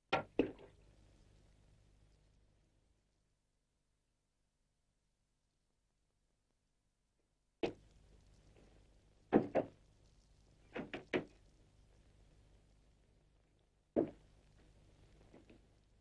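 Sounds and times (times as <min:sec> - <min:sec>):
faint film soundtrack hum: 0:00.1 - 0:16.0
dull knocks and thumps: 0:09.3 - 0:09.8, 0:14.0 - 0:14.2.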